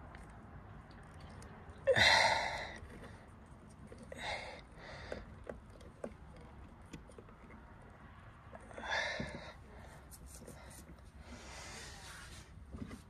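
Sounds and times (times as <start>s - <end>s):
person sighing: 1.9s - 2.7s
faint clicks and taps: 5.0s - 11.0s.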